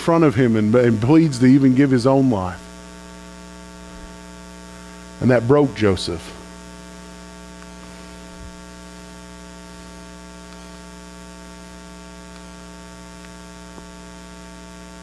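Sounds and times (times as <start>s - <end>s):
electrical mains hum: 0.0s - 15.0s
faint ticks: 12.3s - 14.0s.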